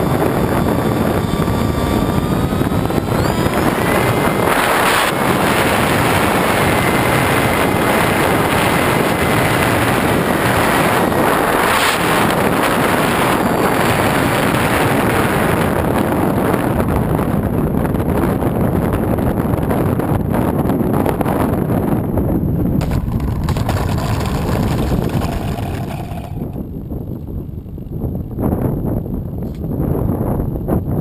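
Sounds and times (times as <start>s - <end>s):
electric motor and propeller whine: 0.0s - 16.9s, 22.8s - 26.7s
wind buffeting microphone: 0.0s - 31.0s.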